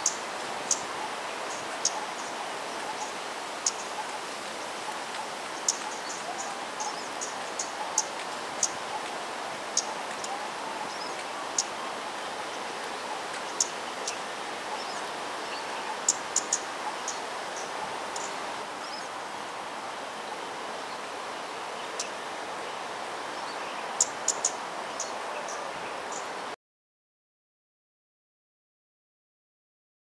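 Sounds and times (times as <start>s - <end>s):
small birds chirping: 0.0s - 19.2s, 21.7s - 26.4s
outdoor background hiss: 0.0s - 26.6s.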